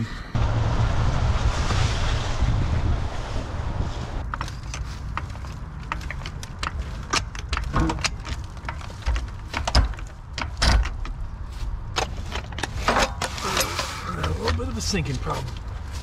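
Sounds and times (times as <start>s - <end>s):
steady low rumble: 0.0s - 16.0s
floor jack metal clicks and knocks: 4.3s - 11.3s.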